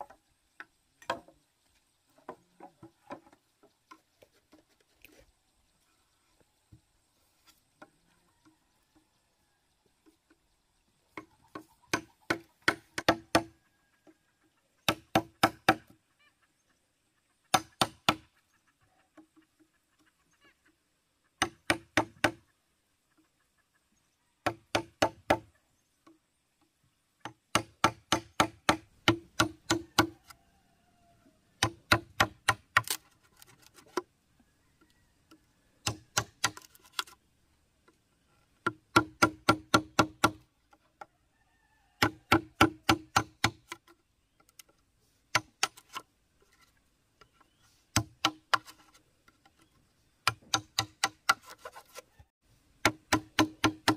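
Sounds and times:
hand tool striking wood: 11.1s - 13.5s, 14.8s - 16.0s, 17.5s - 18.3s, 21.4s - 22.4s, 24.4s - 25.5s, 27.2s - 30.2s, 31.6s - 34.0s, 35.8s - 37.2s, 38.6s - 40.4s, 42.0s - 43.9s, 45.3s - 46.0s, 47.9s - 52.0s, 52.8s - 53.9s.

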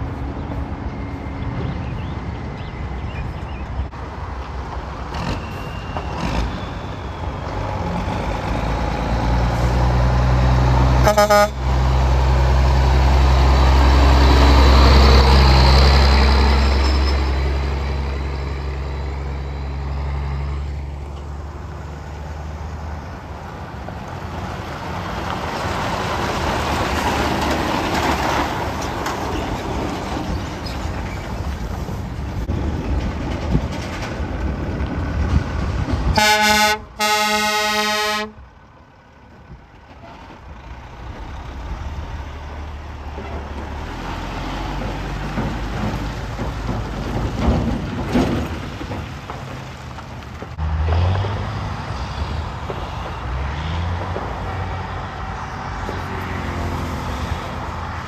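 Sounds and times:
diesel truck engine rumbling: 0.0s - 58.0s
heavy truck approaching: 0.0s - 58.0s
truck horn blast: 11.0s - 11.7s, 36.2s - 38.4s.

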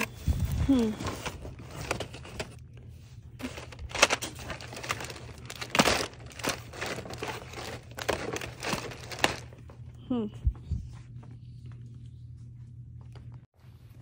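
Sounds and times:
plastic packaging crinkling: 0.0s - 2.6s, 3.4s - 9.8s.

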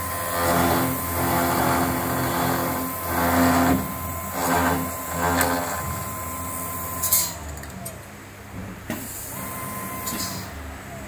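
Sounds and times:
router spindle whine: 0.0s - 7.5s.

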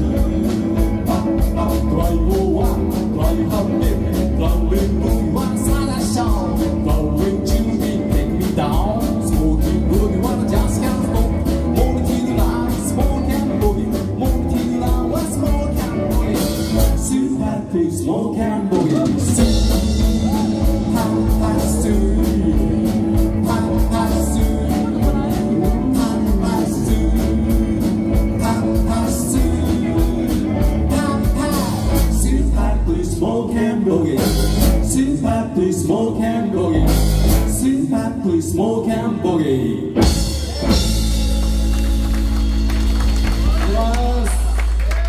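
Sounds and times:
lead vocal: 0.0s - 41.2s
live band playing through a pa: 0.0s - 45.0s.

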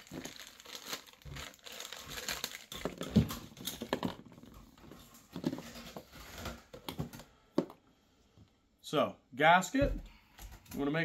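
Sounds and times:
plastic bags crinkling: 0.0s - 7.2s.

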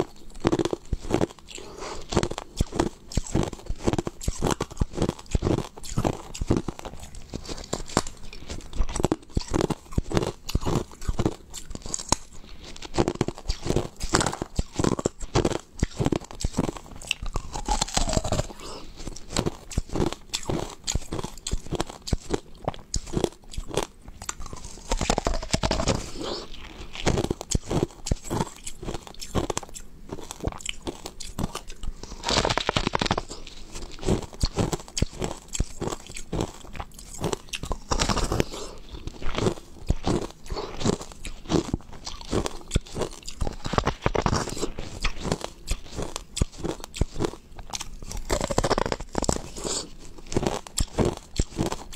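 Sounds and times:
chewing ice crunching: 0.0s - 51.9s.

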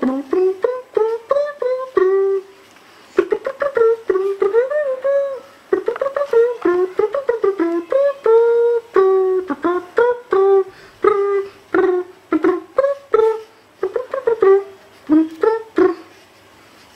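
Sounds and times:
short high-pitched voice sounds: 3.2s - 16.2s.

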